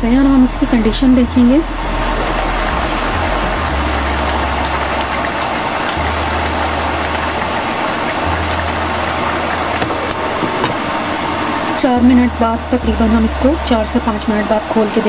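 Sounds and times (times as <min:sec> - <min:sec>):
curry bubbling in pot: 0:01.8 - 0:11.6.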